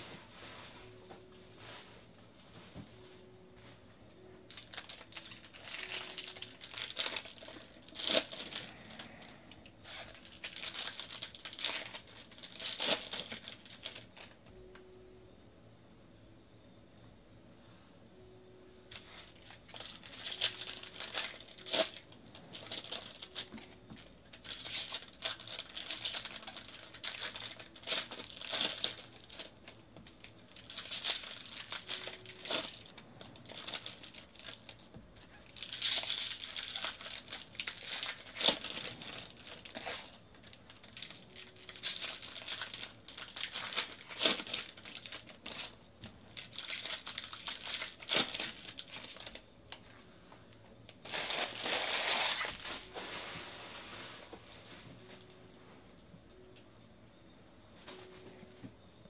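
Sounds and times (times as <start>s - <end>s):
plastic wrappers tearing and crinkling: 4.5s - 14.4s, 18.9s - 49.9s, 50.9s - 53.2s.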